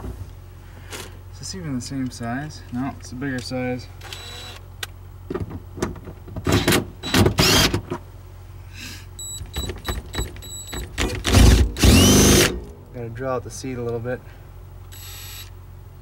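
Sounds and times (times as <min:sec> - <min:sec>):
cordless drill motor running: 0:04.0 - 0:04.6, 0:07.4 - 0:07.7, 0:11.2 - 0:12.5, 0:14.9 - 0:15.6.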